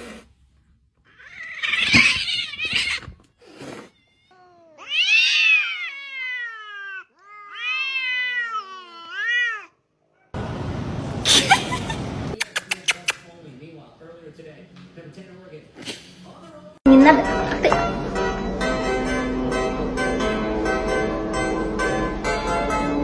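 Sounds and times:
cats caterwauling: 1.0 - 9.9.

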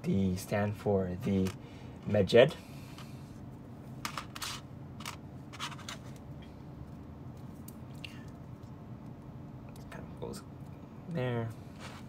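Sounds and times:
plastic parts scraping and clicking: 4.0 - 6.2.

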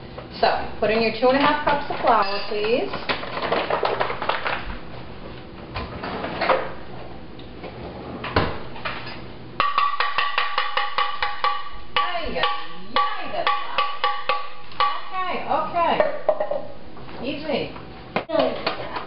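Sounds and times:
music with percussive beat: 9.6 - 15.2.

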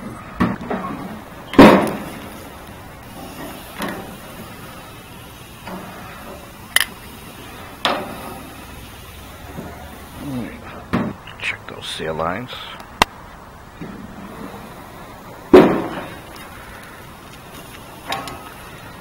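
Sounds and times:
metal grill lid clanking: 7.8 - 8.6
metal tongs knocking grill grates: 7.8 - 8.6, 18.0 - 18.5.

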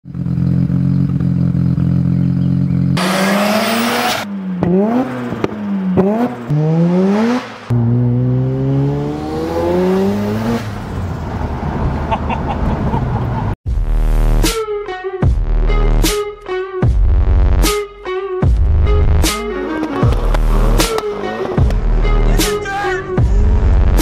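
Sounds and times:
rotary engine revving: 1.8 - 13.2, 19.4 - 24.0
loud exhaust rush: 2.6 - 13.6, 18.9 - 24.0.

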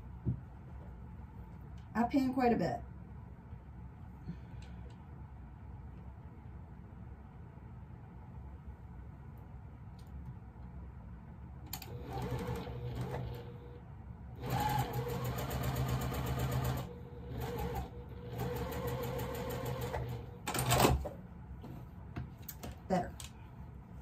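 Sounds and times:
electric sewing machine stitching: 11.7 - 13.7, 14.4 - 21.0.

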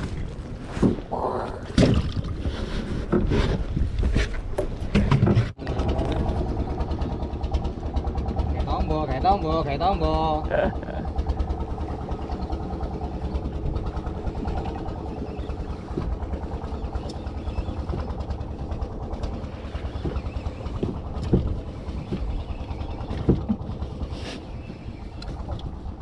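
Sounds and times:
boat engine idling: 4.4 - 26.0
short knocks: 15.9 - 23.8.

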